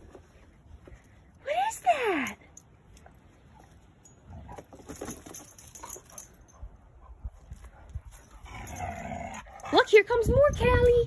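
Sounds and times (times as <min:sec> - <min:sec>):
collar hardware clinking: 0:02.2 - 0:06.7.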